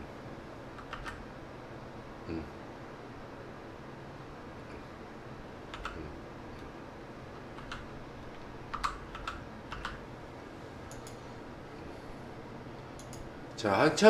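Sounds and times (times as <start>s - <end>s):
faint room hiss: 0.0s - 14.0s
computer keyboard keystrokes: 0.8s - 1.2s, 5.7s - 6.0s, 7.4s - 10.0s, 10.9s - 11.2s, 13.0s - 13.3s.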